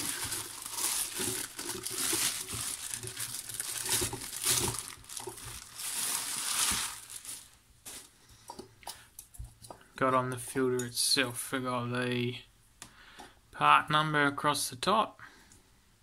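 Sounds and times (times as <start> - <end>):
plastic bag crinkling: 0.0 - 8.6.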